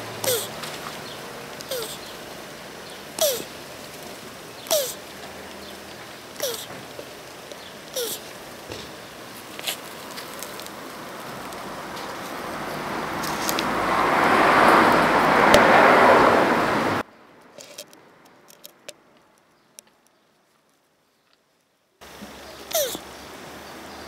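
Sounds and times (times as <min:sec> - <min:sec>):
passing vehicle rushing: 0:08.0 - 0:17.0.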